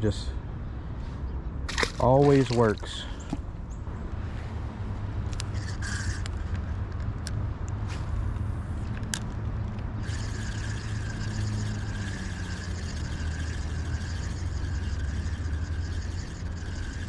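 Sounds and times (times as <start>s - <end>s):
fishing reel whirring and ticking: 5.4s - 6.6s, 9.9s - 17.0s.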